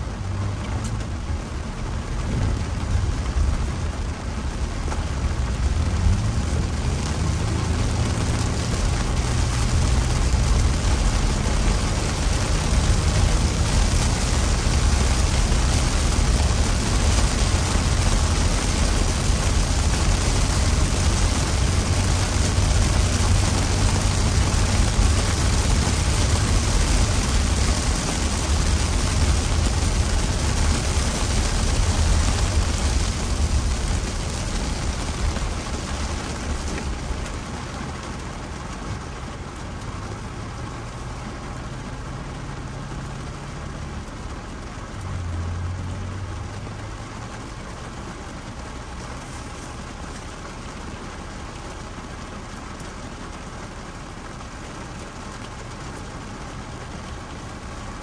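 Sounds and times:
heavy rain on a car: 0.0s - 58.0s
tyres rumbling on wet road: 0.0s - 58.0s.

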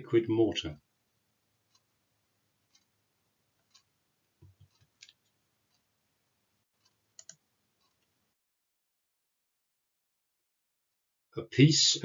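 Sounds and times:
soft clicks: 2.7s - 3.0s, 3.6s - 5.9s, 6.8s - 8.2s.

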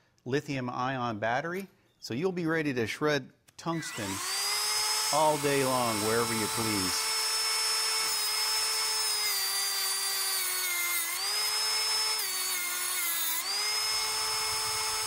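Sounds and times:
cordless grinder whining: 3.7s - 15.0s.

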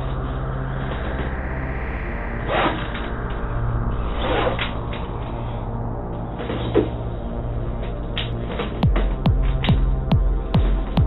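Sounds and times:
low bass drone: 0.0s - 11.0s
electronic dance music: 8.8s - 11.0s
steady kick drum: 8.8s - 11.0s.

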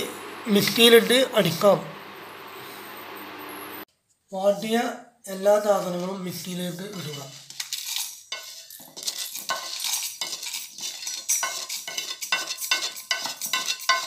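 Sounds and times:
spices rattling into metal jar: 7.5s - 14.0s.

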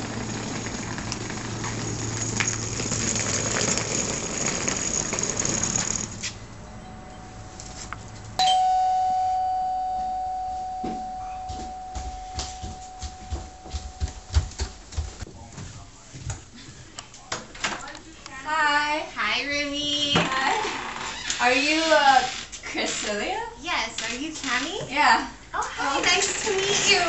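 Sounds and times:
doorbell chime: 8.4s - 14.4s
footsteps down a staircase: 10.0s - 16.8s.

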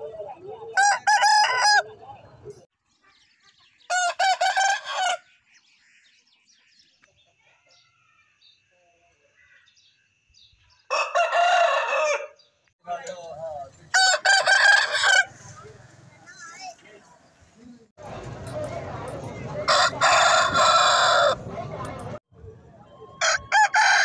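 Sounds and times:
roosters crowing: 0.7s - 2.2s, 3.9s - 5.3s, 10.9s - 12.4s, 13.9s - 15.8s, 19.6s - 21.5s, 23.2s - 24.0s.

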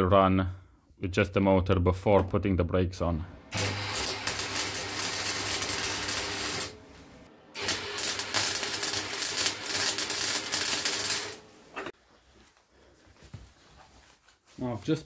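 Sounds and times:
arc welding crackling hiss: 3.5s - 6.8s, 7.6s - 11.6s.

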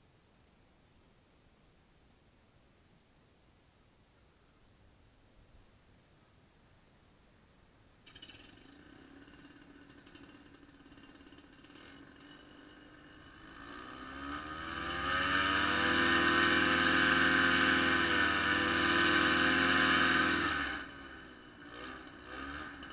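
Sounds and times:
paramotor engine and propeller: 8.1s - 22.9s.

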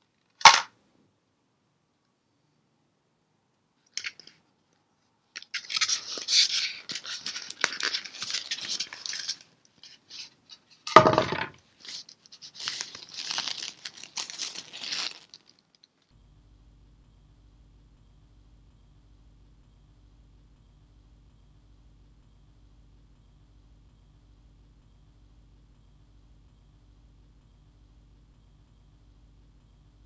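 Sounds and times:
fabric wrapping rustling: 11.8s - 15.8s.

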